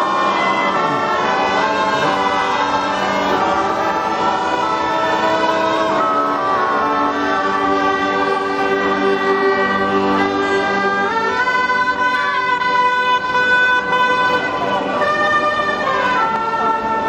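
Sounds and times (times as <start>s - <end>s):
bagpipes playing: 0.0s - 17.0s.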